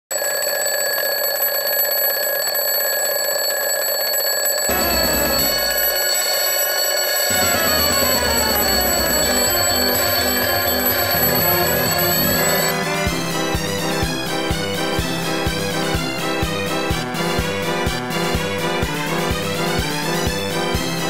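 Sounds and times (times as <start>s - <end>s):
alarm clock ringing: 0.1s - 13.6s.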